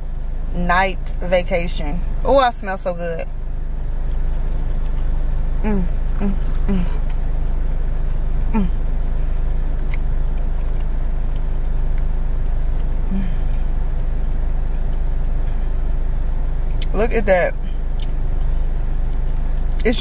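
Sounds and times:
idling car rumble: 0.0s - 20.0s
woman humming with enjoyment: 5.6s - 7.1s, 8.5s - 8.8s, 13.1s - 13.5s.

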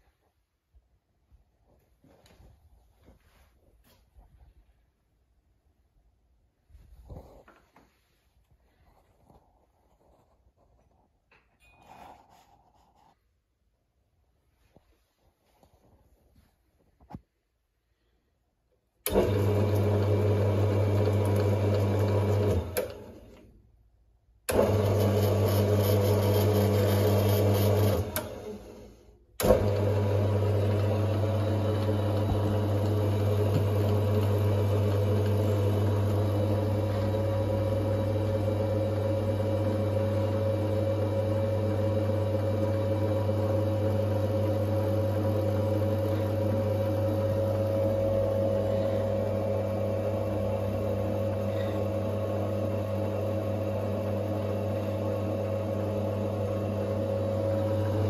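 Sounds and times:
lathe motor humming: 24.5s - 28.8s, 29.4s - 58.0s.

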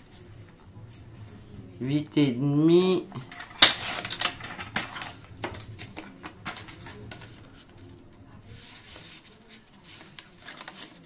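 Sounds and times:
paper rustling: 3.2s - 11.0s.

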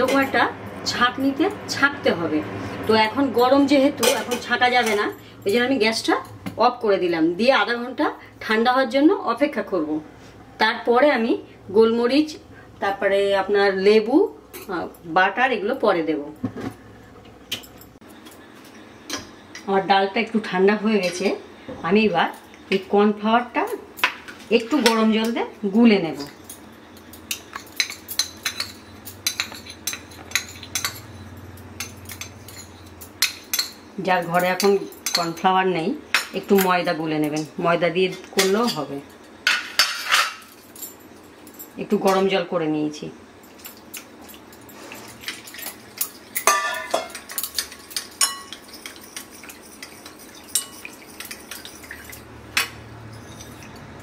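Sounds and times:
metal spoon clinking on steel cup: 26.2s - 35.5s, 43.5s - 54.0s
spoon scraping a bowl: 46.4s - 52.2s, 52.9s - 54.0s.

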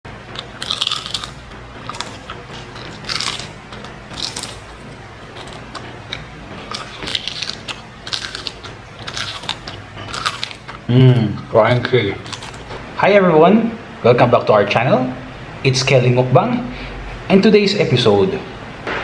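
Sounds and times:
crunching of dried fish being chewed: 0.3s - 12.8s.

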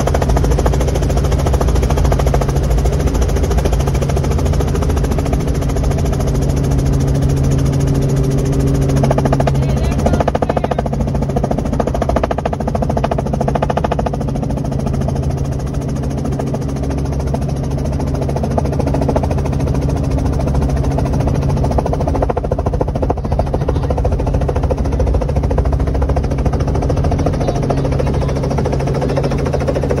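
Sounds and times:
helicopter engine and rotor running: 0.0s - 30.0s.

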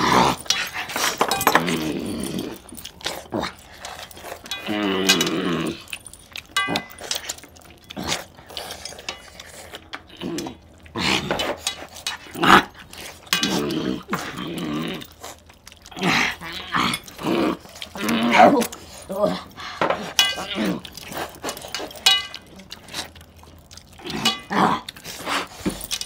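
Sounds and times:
growl-like sounds: 0.0s - 3.6s, 4.6s - 6.0s, 10.1s - 11.4s, 13.4s - 15.3s, 15.9s - 19.5s, 20.4s - 21.0s, 24.0s - 25.0s
people eating with hands: 0.0s - 26.0s
clinks and clicks: 0.2s - 10.6s, 20.1s - 22.8s.

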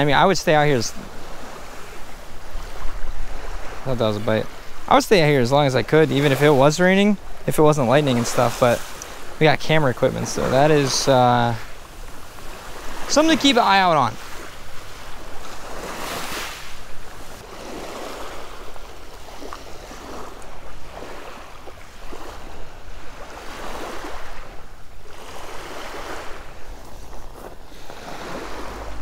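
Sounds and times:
small waves washing on beach: 0.0s - 29.0s
wind rumble on microphone: 0.9s - 3.9s.

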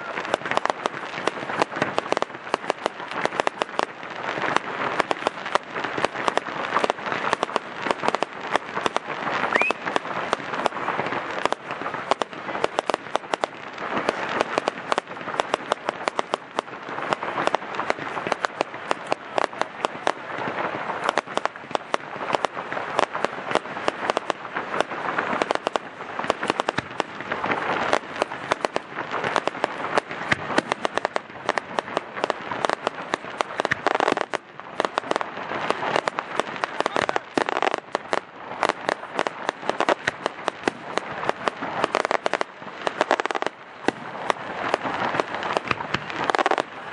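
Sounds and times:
rising firework whistle: 0.0s - 1.3s, 9.4s - 11.5s
fireworks crackling and popping: 0.0s - 46.9s.

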